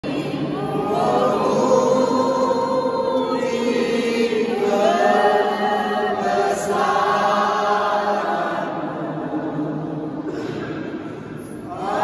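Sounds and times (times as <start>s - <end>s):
group singing a hymn: 0.0s - 12.0s.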